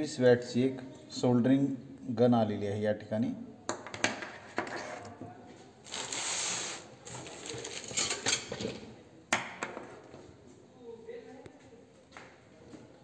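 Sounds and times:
packaging rustle: 5.8 - 8.0.

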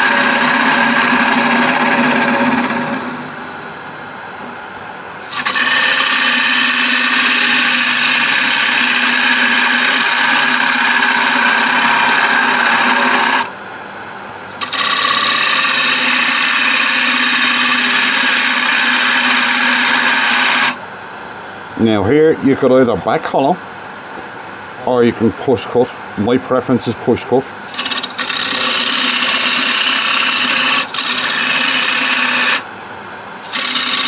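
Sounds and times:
gouge cutting wood on lathe: 0.0 - 3.3, 5.2 - 13.5, 14.5 - 20.8, 27.7 - 32.6, 33.4 - 34.0
lathe humming: 0.0 - 3.8, 5.2 - 13.6, 14.5 - 20.8, 27.6 - 32.8, 33.4 - 34.0.

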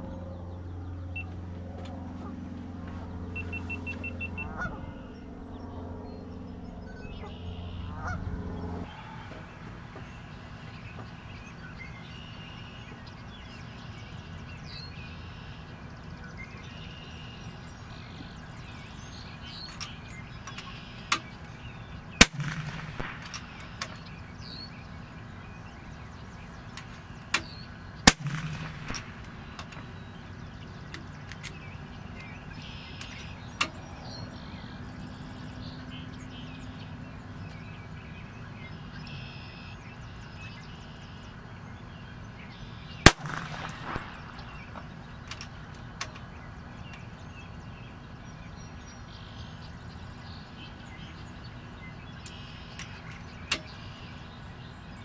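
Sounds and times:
small birds chirping: 0.0 - 55.0
quiet rifle clicks: 19.1 - 24.5, 26.3 - 35.2, 43.0 - 47.1, 52.2 - 54.0
air rifle shot crack: 22.2 - 24.5, 27.3 - 34.0, 43.0 - 46.2.

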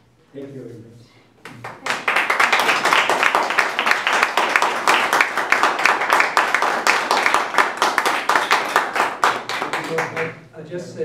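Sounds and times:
audience applauding: 1.6 - 10.4.

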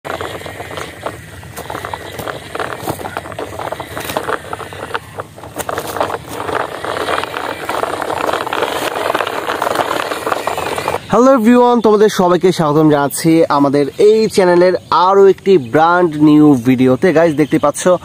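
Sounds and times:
toy truck wheels crunching on dirt: 0.0 - 18.0.

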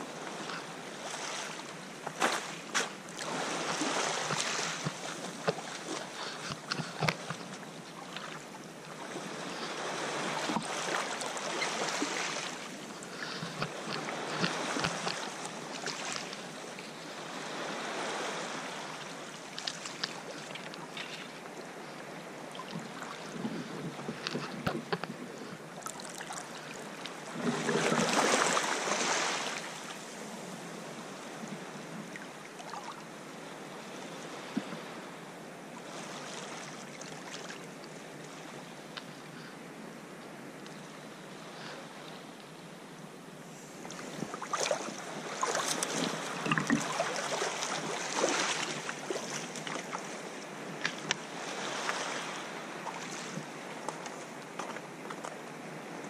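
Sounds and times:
waves washing over cobbles: 44.0 - 50.2.

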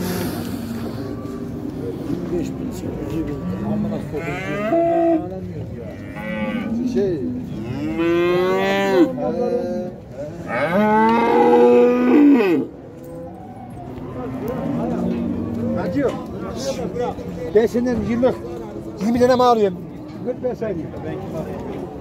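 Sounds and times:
cattle mooing: 3.3 - 5.3, 10.4 - 12.7.

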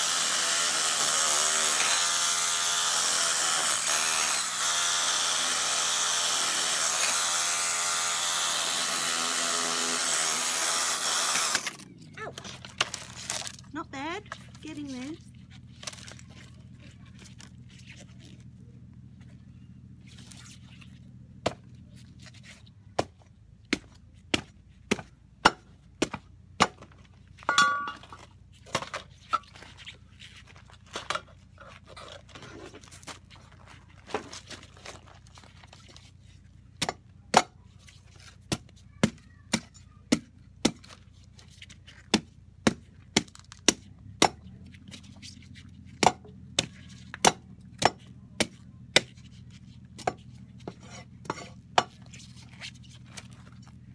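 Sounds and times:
blade knocking coconut shell: 46.0 - 49.2.

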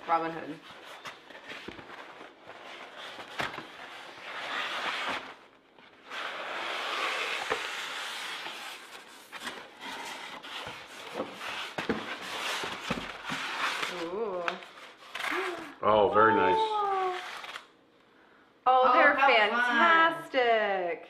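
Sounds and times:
cardboard sliding and scraping: 0.8 - 15.2
styrofoam block pulled out: 6.0 - 11.0.

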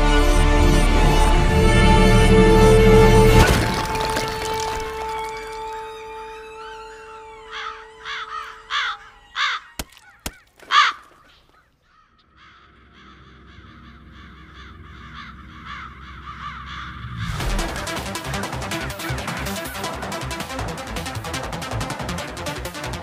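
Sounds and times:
bird cawing: 5.1 - 17.4.

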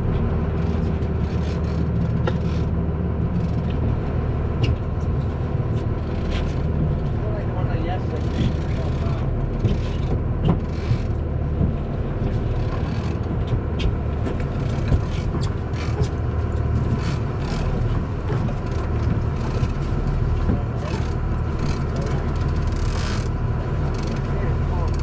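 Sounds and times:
boat engine rumbling: 0.0 - 25.0
light clicks and knocks: 8.1 - 25.0.

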